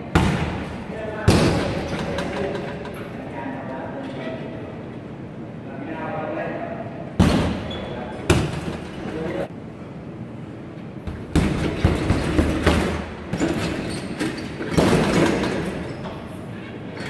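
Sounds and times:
hits on punching bag: 11.1s - 13.6s.

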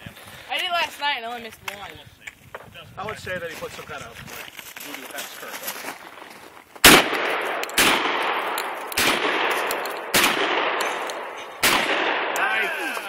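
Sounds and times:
shotgun shots echoing: 6.8s - 13.0s.

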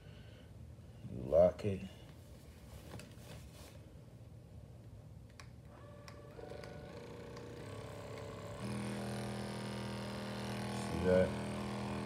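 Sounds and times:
massage gun clicks: 5.3s - 8.8s
massage gun motor hum: 5.7s - 12.0s.

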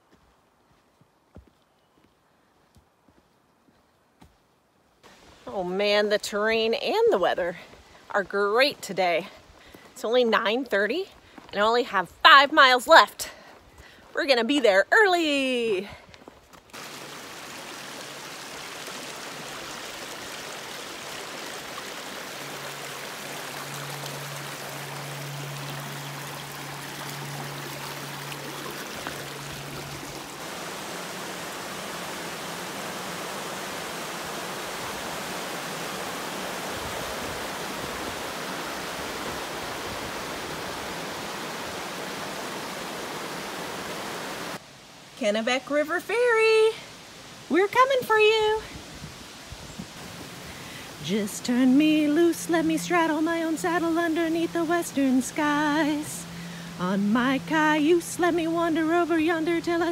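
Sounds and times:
river water rushing over rocks: 16.7s - 45.1s, 49.2s - 59.9s
low steady hum: 50.6s - 59.9s.

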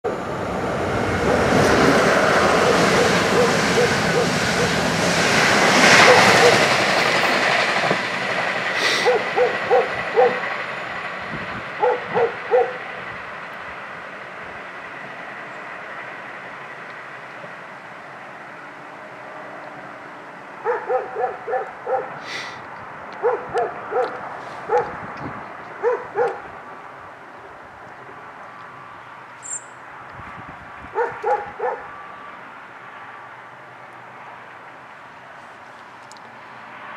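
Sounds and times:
passing train rumble: 0.0s - 36.9s
dog barking: 2.6s - 4.8s, 6.0s - 6.7s, 9.0s - 10.4s, 11.8s - 12.8s, 20.6s - 22.3s, 23.2s - 25.0s, 25.8s - 26.4s, 31.0s - 31.9s.

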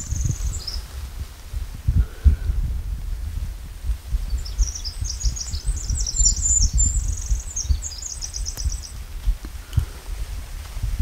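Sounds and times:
songbird twittering trills: 0.0s - 0.9s, 4.3s - 9.0s.

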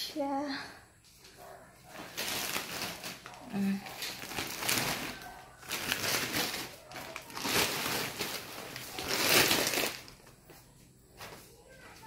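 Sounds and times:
plastic wrapping crinkling: 1.9s - 10.5s.

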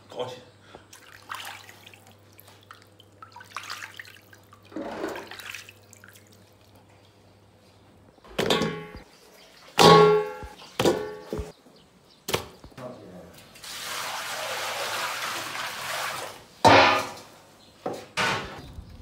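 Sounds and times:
meat sloshing in water: 0.9s - 6.9s
metal bowl clanking: 8.4s - 9.0s, 9.8s - 11.5s, 16.6s - 17.3s.

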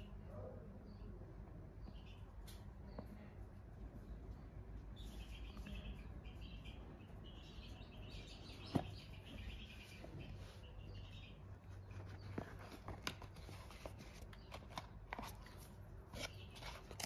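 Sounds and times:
low background hum: 0.0s - 17.0s
small birds chirping: 0.0s - 17.0s.

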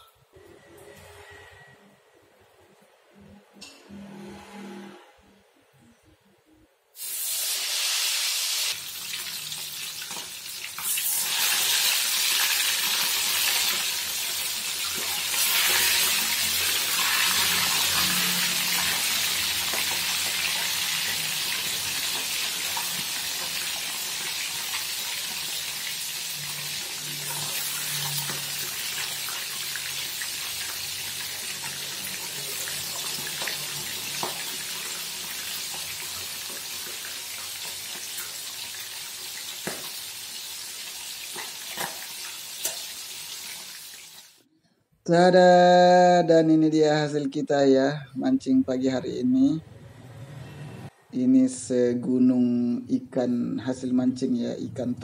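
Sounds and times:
fish sizzling in hot oil: 7.0s - 44.4s.

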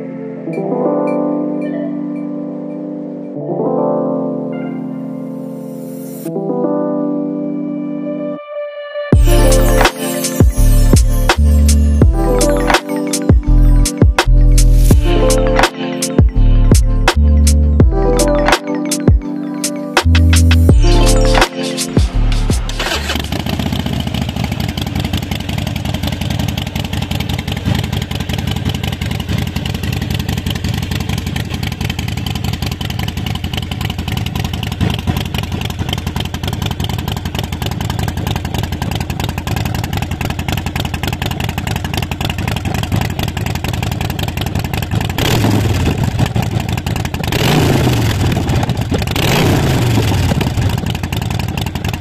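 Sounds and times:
motorcycle engine idling and revving: 9.2s - 19.4s, 20.0s - 52.0s.

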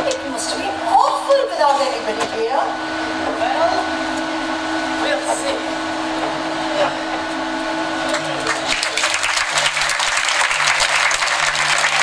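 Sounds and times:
machine-like hum: 0.0s - 12.0s
audience applause: 8.1s - 12.0s.

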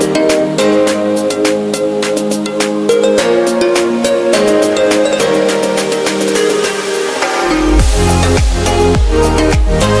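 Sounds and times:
held chords: 0.0s - 10.0s
quick percussion hits: 7.2s - 9.9s.

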